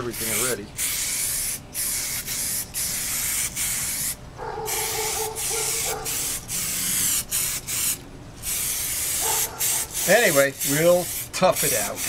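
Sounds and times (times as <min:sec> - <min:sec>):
aerosol can spraying: 0:00.2 - 0:12.0.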